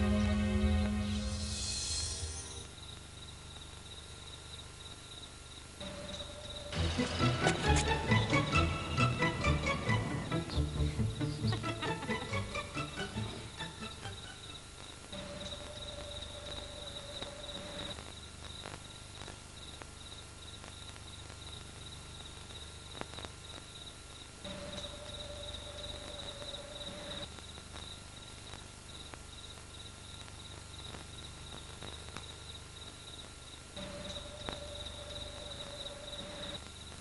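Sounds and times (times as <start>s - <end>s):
high-pitched insect-like chirping: 0.9s - 6.8s, 10.3s - 18.0s, 23.4s - 28.0s, 33.8s - 36.9s.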